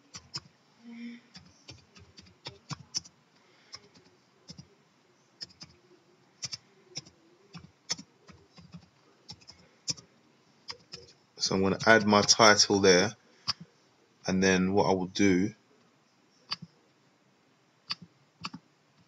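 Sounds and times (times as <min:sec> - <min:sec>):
computer keyboard keystrokes: 0:00.1 - 0:00.5, 0:01.3 - 0:03.1, 0:03.7 - 0:04.7, 0:05.4 - 0:05.8, 0:06.4 - 0:10.0, 0:16.5 - 0:16.7, 0:17.9 - 0:18.6.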